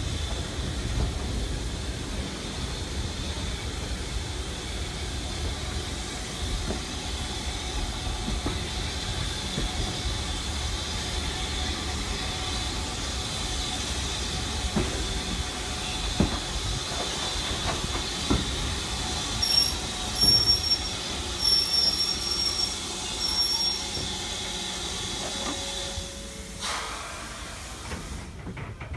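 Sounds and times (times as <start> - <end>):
steam hissing: 0.0 - 28.5
steam train rolling on track: 0.0 - 28.9
wheels squealing: 19.3 - 24.4.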